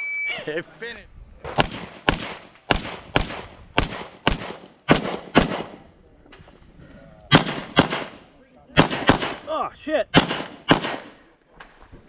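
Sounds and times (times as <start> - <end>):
pistol shots: 1.4 - 5.9, 7.3 - 9.5, 10.1 - 11.2.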